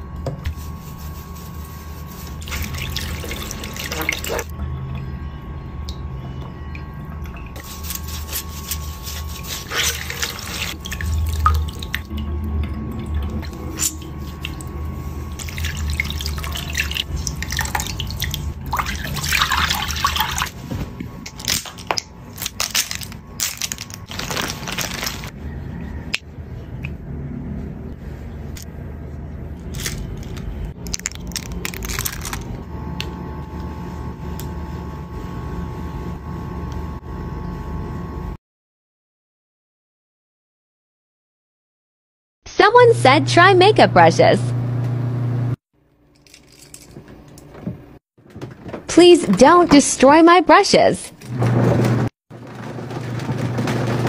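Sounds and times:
water splashing and squelching: 2.0s - 4.5s, 6.8s - 20.6s, 21.2s - 25.4s.

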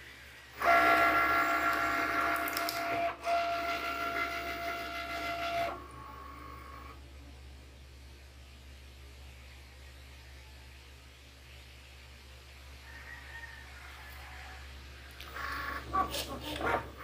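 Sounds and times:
cutting machine motors whining: 0.6s - 7.0s.

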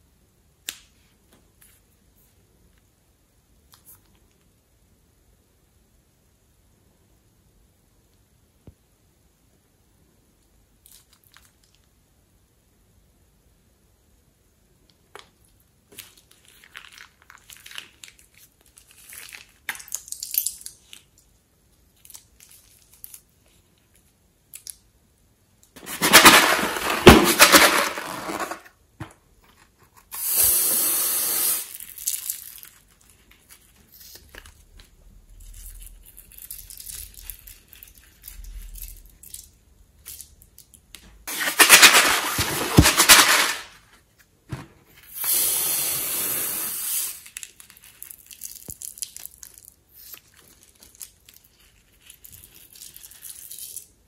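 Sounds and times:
glue squeezing from bag: 30.0s - 34.6s, 45.0s - 53.9s.

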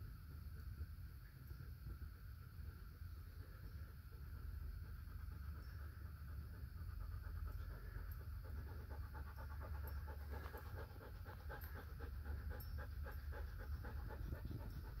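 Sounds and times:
dog panting: 3.4s - 15.0s.

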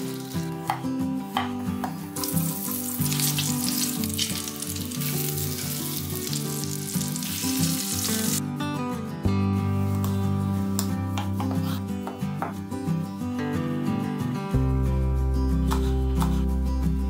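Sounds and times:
chicken sizzling in frying pan: 0.0s - 0.6s, 2.2s - 8.4s
background music: 0.0s - 17.0s.

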